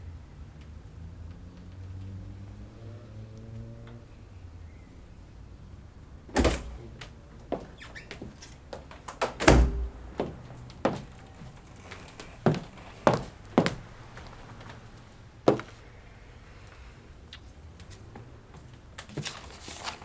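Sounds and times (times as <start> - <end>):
heavy deep thump: 9.4 - 10.4.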